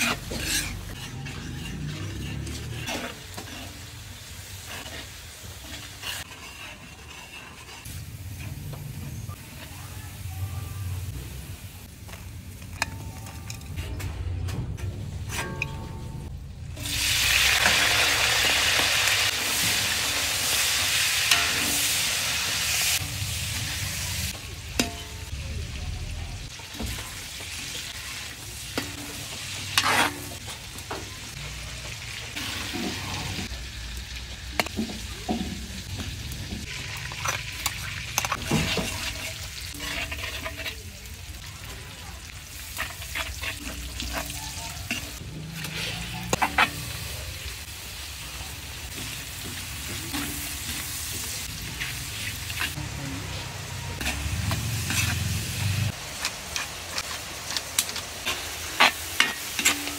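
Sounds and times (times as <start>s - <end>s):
utensil scraping and clinking on pan: 0.0s - 8.6s, 12.6s - 23.1s, 28.8s - 31.1s, 34.6s - 41.7s, 42.3s - 47.2s, 48.9s - 52.8s, 54.0s - 59.9s
food sizzling in hot oil: 0.0s - 13.3s, 16.4s - 59.9s.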